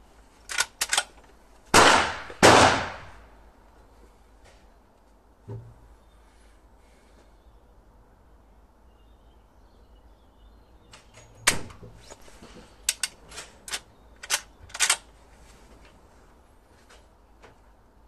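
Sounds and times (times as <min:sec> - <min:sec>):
metallic clacks of rifle lever: 0:00.5 - 0:01.4, 0:10.9 - 0:15.1
rifle shot with echo: 0:01.8 - 0:03.2.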